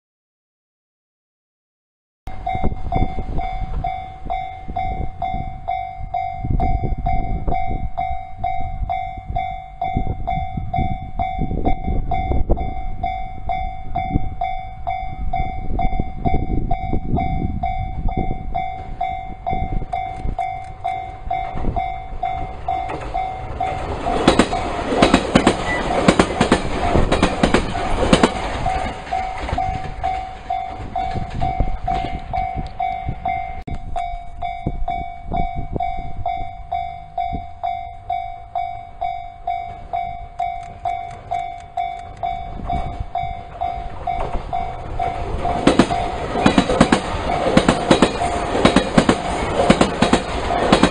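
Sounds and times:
electric train passing: 0:02.3 - 0:50.9
steady high tone: 0:02.3 - 0:50.9
wheels clicking over rail joints: 0:18.6 - 0:34.6, 0:36.7 - 0:50.9.

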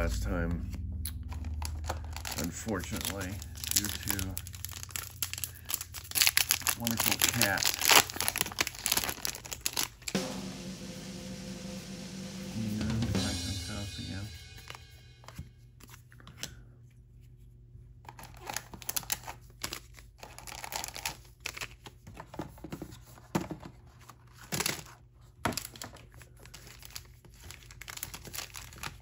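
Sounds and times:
card wrappers crinkling and tearing: 0:01.1 - 0:10.2, 0:14.6 - 0:16.7, 0:18.0 - 0:22.3, 0:23.8 - 0:29.0.

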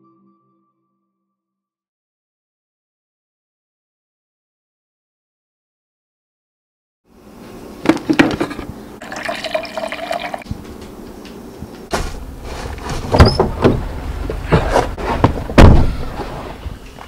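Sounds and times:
coffee maker gurgling: 0:08.1 - 0:10.5.

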